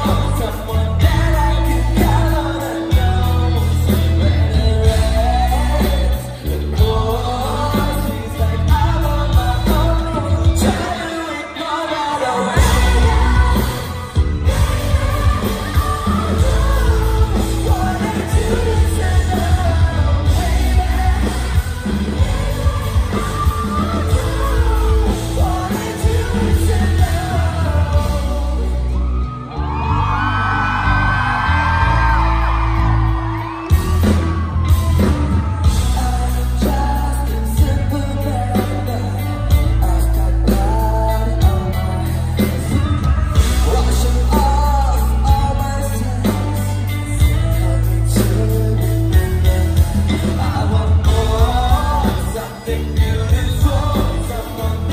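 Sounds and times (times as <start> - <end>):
lead vocals singing: 0.0 - 54.9
live pop-rock band playing: 0.0 - 54.9
fans yelling: 10.5 - 37.3, 41.2 - 47.8.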